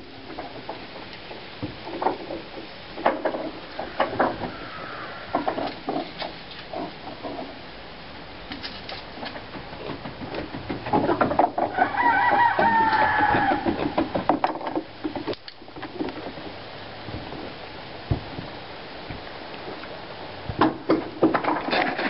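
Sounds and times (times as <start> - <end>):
loud animal call: 3.6 - 5.7, 11.8 - 14.0.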